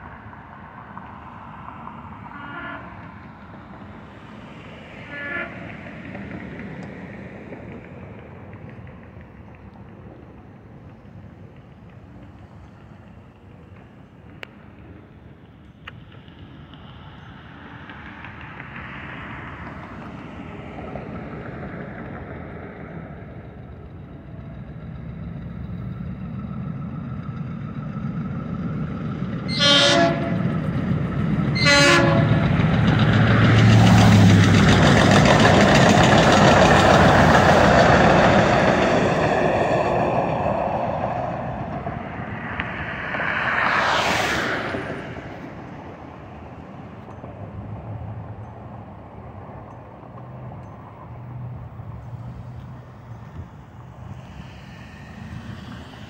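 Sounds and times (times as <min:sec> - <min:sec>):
train cars rumbling past: 0:00.0 - 0:56.0
train horn blasts: 0:02.2 - 0:03.2, 0:05.0 - 0:05.9, 0:29.5 - 0:30.6, 0:31.5 - 0:32.5.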